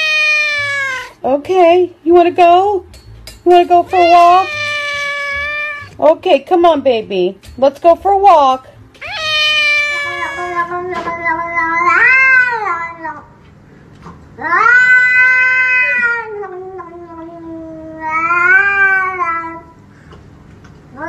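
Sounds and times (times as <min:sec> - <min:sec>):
cats meowing in long yowls: 0:00.0 - 0:01.2, 0:03.9 - 0:06.0, 0:09.0 - 0:13.2, 0:14.4 - 0:19.7.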